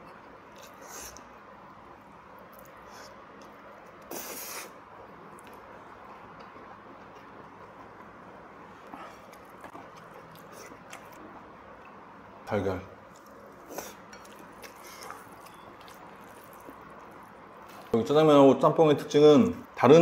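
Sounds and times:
quiet chewing: 2.3s - 4.7s, 5.3s - 12.0s, 13.0s - 18.0s.

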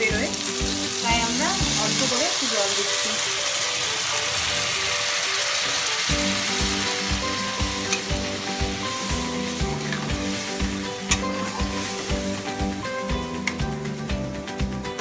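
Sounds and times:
background music with beat: 0.0s - 2.3s, 3.0s - 15.0s
oil sizzling in wok: 0.0s - 14.4s
spatula scraping wok: 2.9s - 13.6s.

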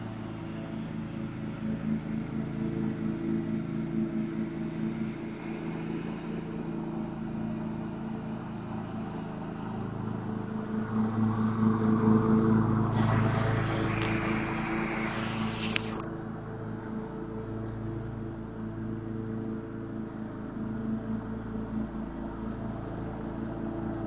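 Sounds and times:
rushing noise: 10.8s - 16.0s.

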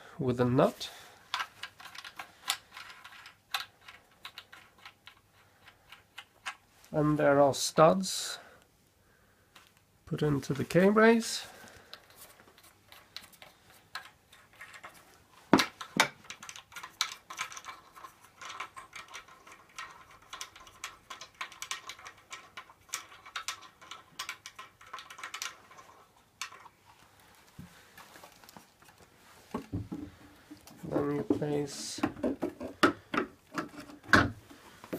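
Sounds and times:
rustling handling noise: 9.5s - 20.8s, 23.6s - 34.9s.

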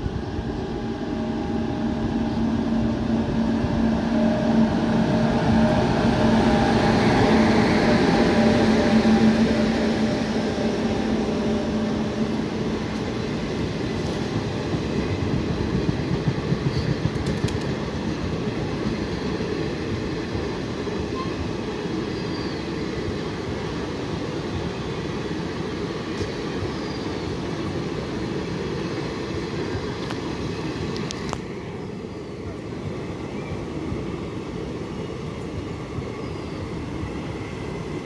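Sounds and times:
train wheels rumbling on rails: 0.0s - 38.0s.

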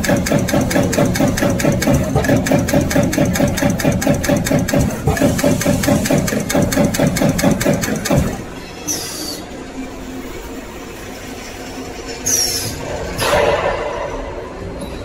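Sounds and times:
punch press striking sheet metal: 0.0s - 8.4s, 13.2s - 14.4s
steady machine hum: 0.0s - 15.0s.

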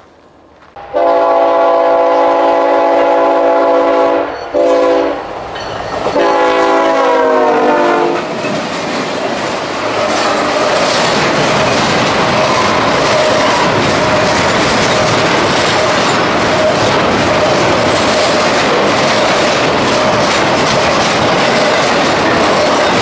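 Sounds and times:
train rumble and wheel clatter: 0.0s - 23.0s
locomotive horn blasts: 0.8s - 5.2s, 6.2s - 8.3s.

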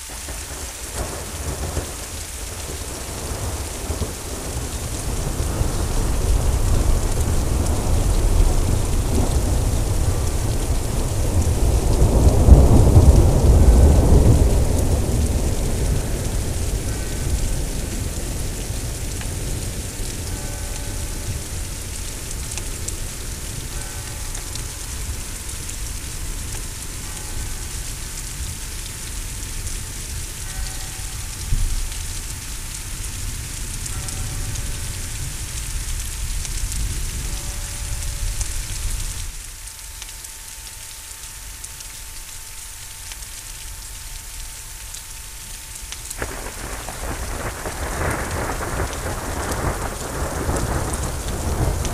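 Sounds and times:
thunder rumbling: 0.0s - 27.6s, 46.2s - 51.9s
heavy rain falling: 0.0s - 51.9s.

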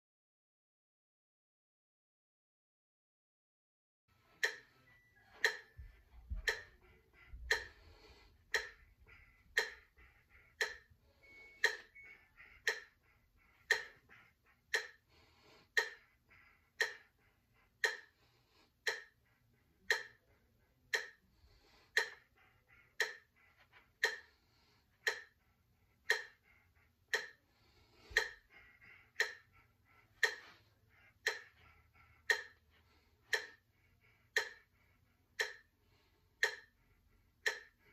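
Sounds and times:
metronome clicking: 4.4s - 6.8s, 10.6s - 12.9s, 30.2s - 30.6s, 36.4s - 36.7s, 37.4s - 37.8s.

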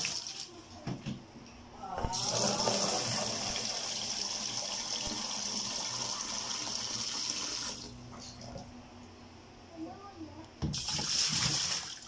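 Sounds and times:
faucet water pouring into sink: 2.2s - 8.4s, 10.7s - 12.0s.

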